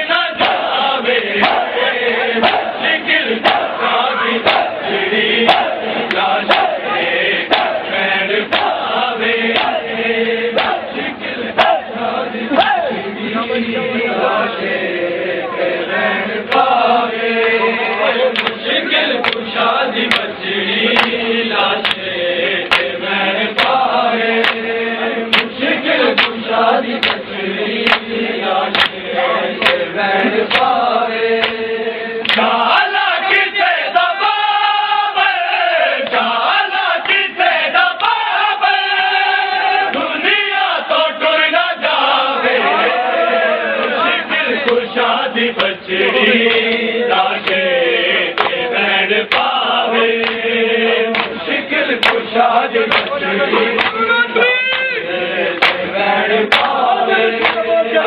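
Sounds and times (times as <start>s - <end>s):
crowd of men chanting: 0.0s - 58.0s
hands slapping chests: 0.4s - 0.7s, 1.4s - 1.7s, 2.4s - 2.7s, 4.4s - 4.8s, 5.4s - 6.8s, 7.5s - 7.8s, 8.5s - 8.8s, 9.5s - 9.8s, 10.6s - 10.8s, 16.5s - 16.7s, 18.3s - 20.3s, 20.9s - 21.2s, 21.8s - 23.0s, 23.6s - 23.8s, 24.4s - 24.7s, 25.3s - 26.4s, 27.0s - 27.2s, 27.8s - 28.1s, 28.7s - 29.0s, 29.6s - 30.8s, 31.4s - 31.6s, 32.2s - 32.5s, 45.6s - 45.8s, 48.4s - 48.6s, 49.3s - 49.6s, 50.2s - 50.5s, 51.1s - 51.4s, 52.0s - 53.2s, 53.8s - 54.1s, 55.6s - 55.9s, 56.5s - 57.7s.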